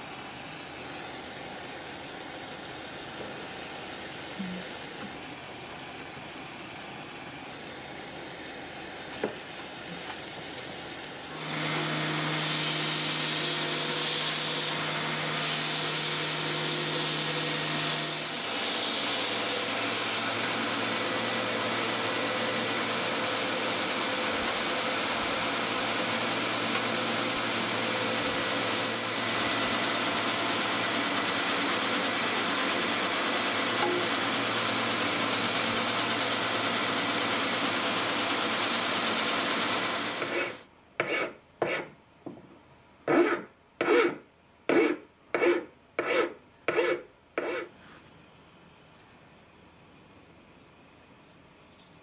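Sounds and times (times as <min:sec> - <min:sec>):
belt grinder running: 0:10.0 - 0:40.6.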